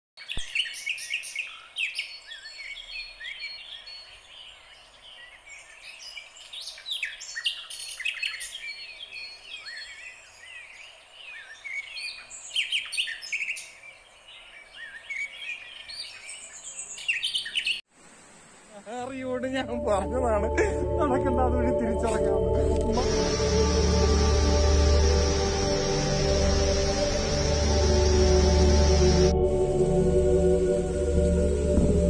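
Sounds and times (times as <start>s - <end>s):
chorus of birds chirping: 0.2s - 17.9s
faint steady high hiss: 0.2s - 32.0s.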